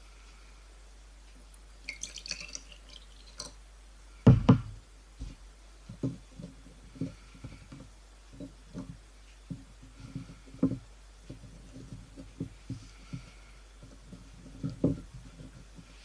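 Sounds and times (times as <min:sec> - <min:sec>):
water poured into glass jar: 0:01.9 - 0:03.6
loud knocks: 0:04.3 - 0:04.8.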